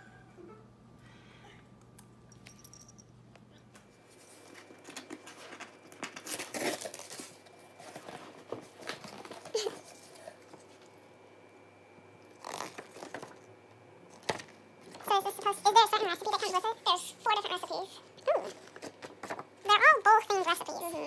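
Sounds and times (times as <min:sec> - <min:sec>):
cardboard and paper rustling: 0:04.1 - 0:10.8, 0:12.4 - 0:13.4, 0:18.3 - 0:19.8.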